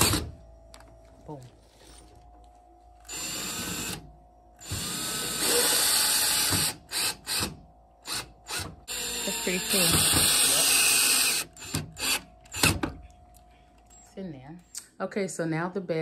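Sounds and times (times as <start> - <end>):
power drill driving screws: 3.0 - 4.0, 4.6 - 7.5, 8.1 - 12.8.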